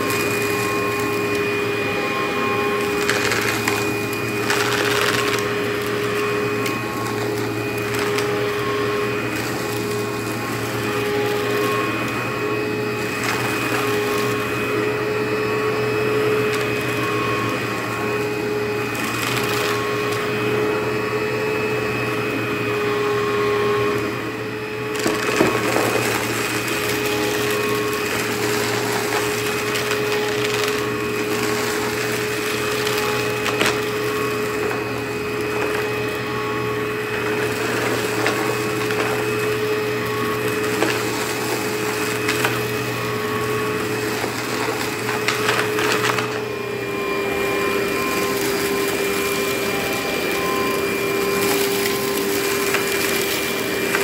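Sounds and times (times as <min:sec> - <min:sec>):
vacuum cleaner motor whine: 0:00.0 - 0:54.0
debris crackling: 0:25.0 - 0:46.4.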